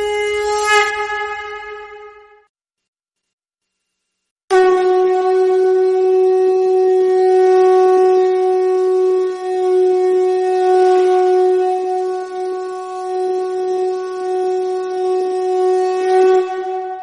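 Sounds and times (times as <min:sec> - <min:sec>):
conch shell blown: 0:00.0 - 0:02.5, 0:04.5 - 0:17.0.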